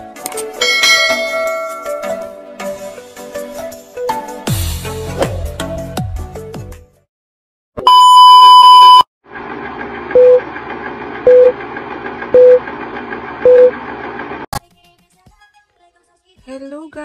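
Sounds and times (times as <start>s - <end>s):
high beep: 7.8s - 9.0s
short lower beeps: 7.9s - 9.0s.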